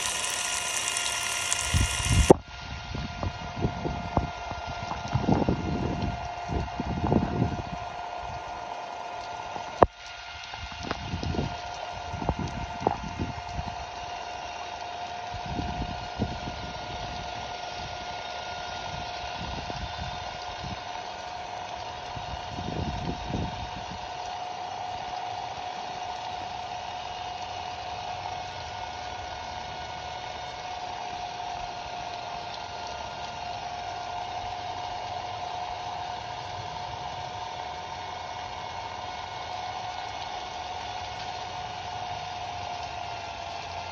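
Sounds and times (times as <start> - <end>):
water spray hissing: 0.0 - 2.4
impact driver motor whine: 0.0 - 2.5.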